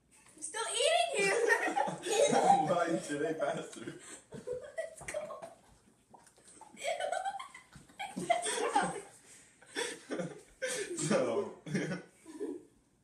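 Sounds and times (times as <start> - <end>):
people laughing and giggling: 1.2 - 5.6, 6.7 - 12.6.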